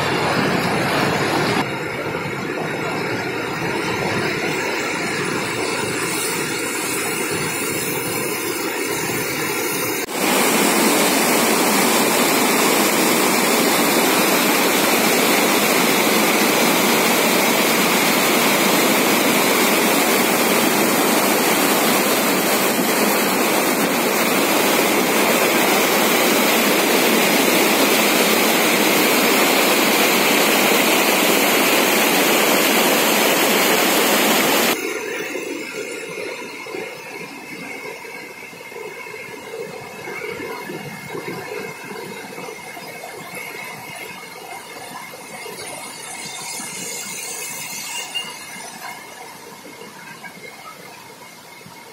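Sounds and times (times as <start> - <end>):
water rushing over weir: 0.0 - 51.9.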